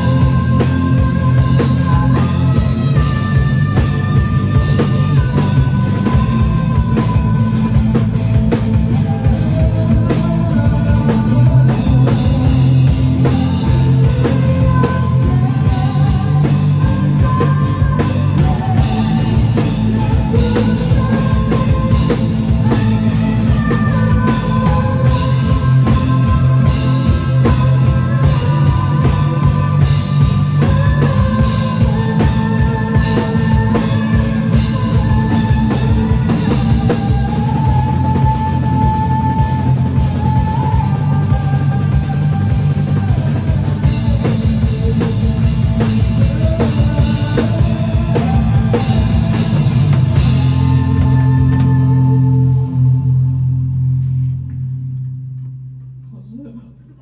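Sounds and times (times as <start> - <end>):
drum kit: 0.0 - 56.0
electric guitar: 0.0 - 56.0
bass guitar: 0.0 - 57.0.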